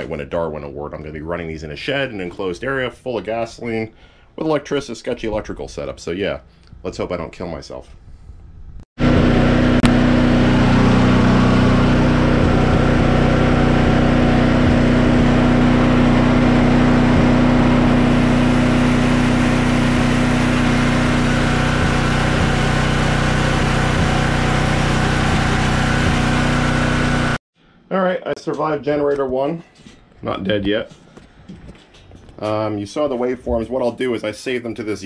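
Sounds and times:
generator engine running: 0:09.0 - 0:27.4.

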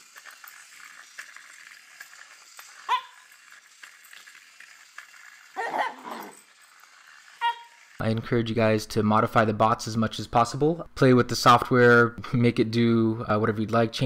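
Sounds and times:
dog yipping and whining: 0:02.8 - 0:03.4, 0:05.6 - 0:06.4, 0:07.4 - 0:07.8.

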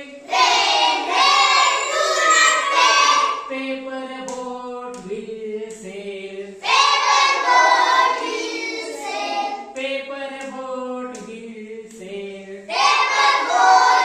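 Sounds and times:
children singing in unison: 0:00.0 - 0:04.4, 0:06.4 - 0:09.8, 0:12.7 - 0:14.0.

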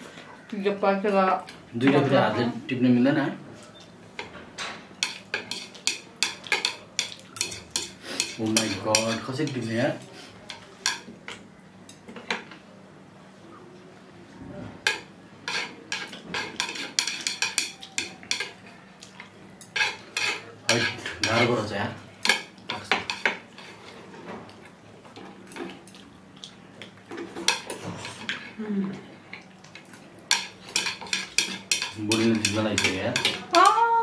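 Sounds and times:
chopsticks clinking on bowls: 0:29.8 - 0:33.7.

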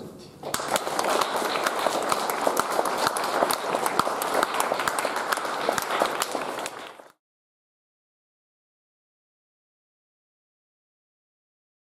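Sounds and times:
crowd applauding: 0:00.4 - 0:07.2.

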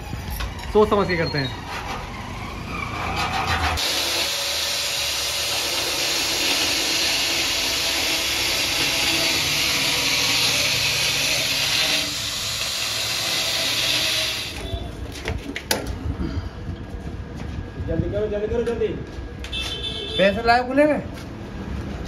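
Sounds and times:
angle grinder grinding steel: 0:02.9 - 0:14.7.

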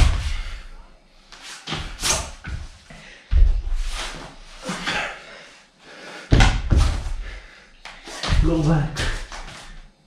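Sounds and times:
thumps on a yoga mat: 0:06.3 - 0:07.2.

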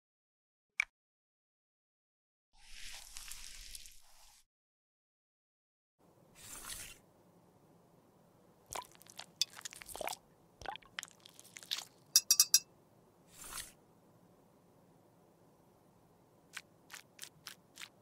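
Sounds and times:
metal tube clicking and knocking: 0:12.2 - 0:12.7
sharp clinks against glass: 0:12.2 - 0:12.7.

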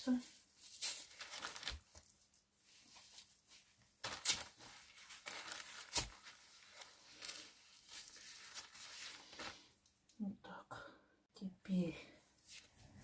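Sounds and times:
elastic strap rustling: 0:00.3 - 0:10.0
plastic bag crinkling: 0:00.6 - 0:09.7.

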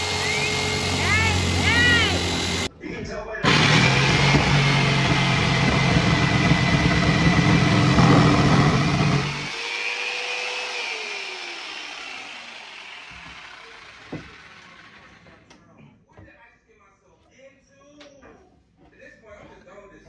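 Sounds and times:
jigsaw cutting wood: 0:00.0 - 0:02.7, 0:03.4 - 0:15.3.

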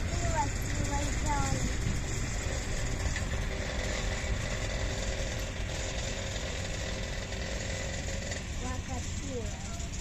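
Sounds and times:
diesel locomotive engine rumbling: 0:00.0 - 0:10.0.

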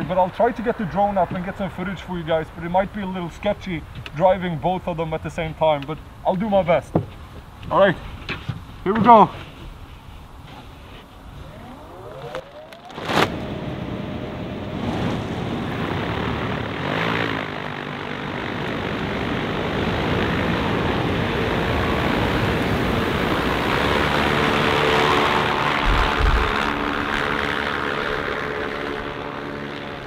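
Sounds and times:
propellers spinning: 0:10.3 - 0:30.0.

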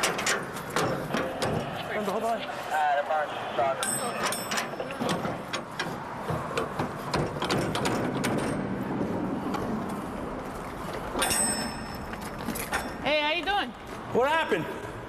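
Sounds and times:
ringing metal clank: 0:03.8 - 0:05.6, 0:11.2 - 0:13.0.

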